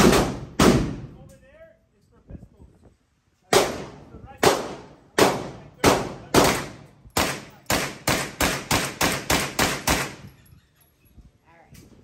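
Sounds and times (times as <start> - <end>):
gunshots with echo: 0.0 - 1.0, 3.5 - 10.2.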